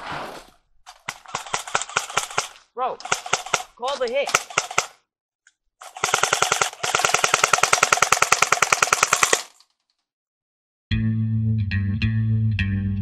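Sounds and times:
airsoft rifle bursts: 1.1s - 5.0s, 5.8s - 9.6s.

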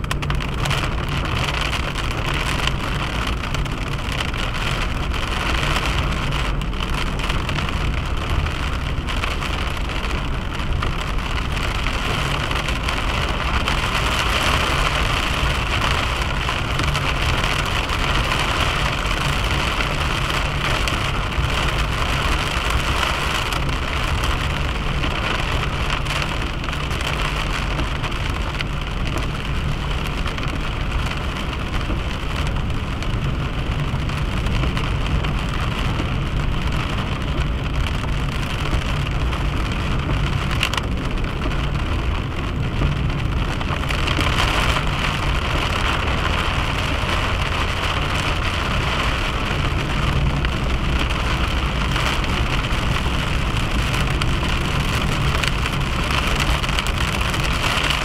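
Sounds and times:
car engine and tyre hum: 0.0s - 58.0s.

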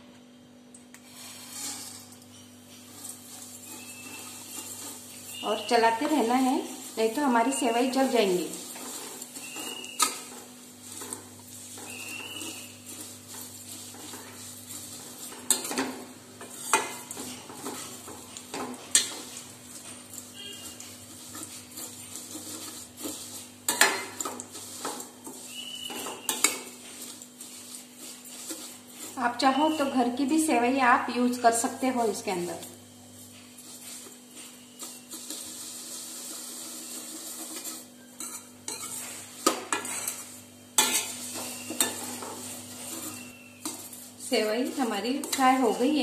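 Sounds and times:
spoon scraping metal pan: 1.0s - 30.5s, 33.4s - 46.0s
spoon clinking against pan: 38.1s - 40.2s.

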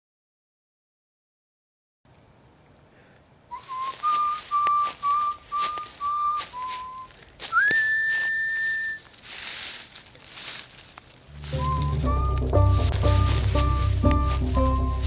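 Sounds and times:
person whistling a tune: 3.5s - 9.1s, 11.5s - 15.0s.

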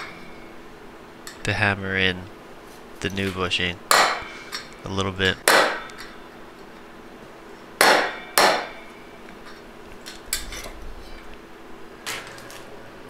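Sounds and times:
hammer striking metal: 3.9s - 4.7s, 5.4s - 6.2s, 7.8s - 8.9s.

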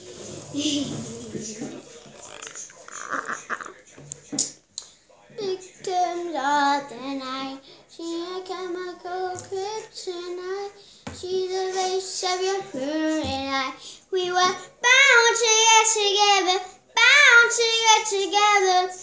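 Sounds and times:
girl singing: 5.4s - 19.0s.

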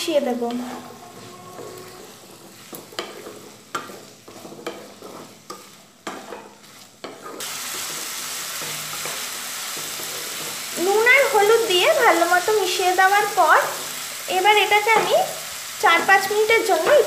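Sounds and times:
food sizzling in oil: 0.0s - 17.0s
spatula scraping a wok: 0.0s - 17.0s.

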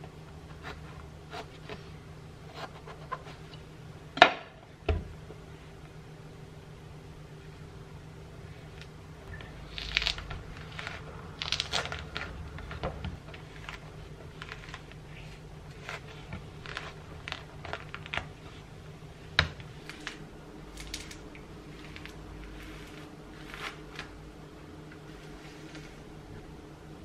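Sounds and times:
low steady hum: 0.0s - 27.0s
fruit rind tearing: 9.5s - 18.4s.

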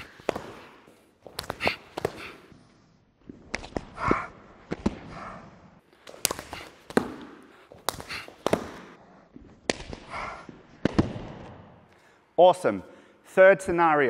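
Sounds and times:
hands and forearms slapping: 0.0s - 2.5s, 5.9s - 9.0s, 9.6s - 11.5s.

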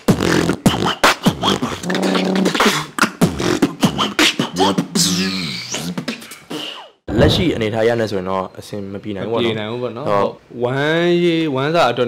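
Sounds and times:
vocal beatboxing: 0.0s - 7.0s.

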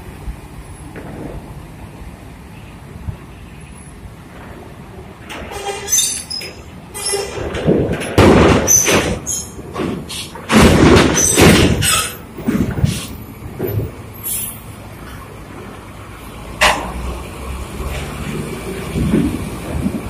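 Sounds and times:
bus rumbling and clanking: 0.0s - 20.0s
high metallic squeals: 5.4s - 7.5s, 8.6s - 10.4s.

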